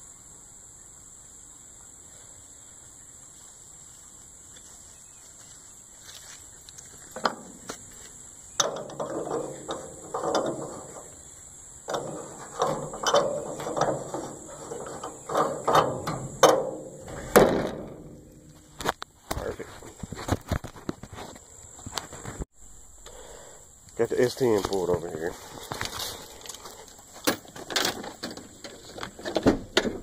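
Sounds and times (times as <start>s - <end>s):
sharp metallic clanks: 8.6s - 11.2s, 11.8s - 18.9s.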